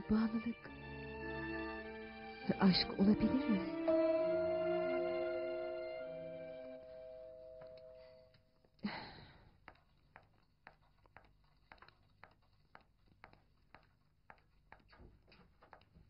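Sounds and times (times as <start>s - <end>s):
background music: 0.0s - 8.1s.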